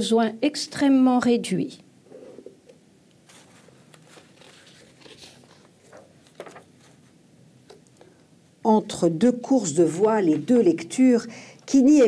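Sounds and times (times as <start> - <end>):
paper rustling: 3.2 - 7.2.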